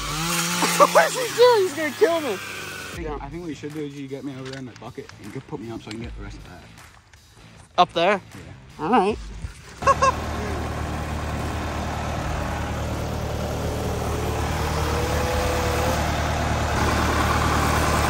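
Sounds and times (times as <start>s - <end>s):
loader engine running: 9.8s - 18.0s.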